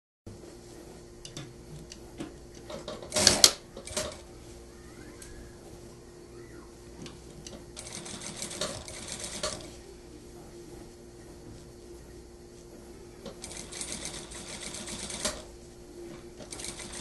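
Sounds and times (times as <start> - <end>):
industrial sewing machine stitching: 3.1 - 4.2, 7.8 - 9.7, 13.4 - 15.5, 16.4 - 17.0.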